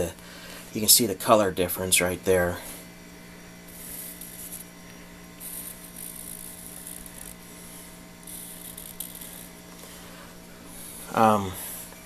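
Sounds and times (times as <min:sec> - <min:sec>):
steady low hum: 0:00.0 - 0:12.0
marker scratching on steel: 0:03.7 - 0:04.7, 0:05.4 - 0:07.4, 0:08.3 - 0:09.5.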